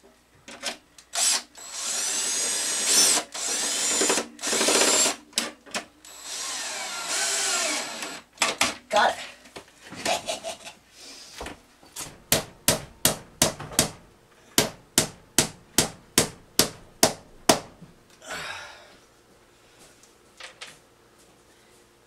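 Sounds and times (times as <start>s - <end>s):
hammer striking nails into wood: 12.3s - 14.0s, 14.6s - 17.8s.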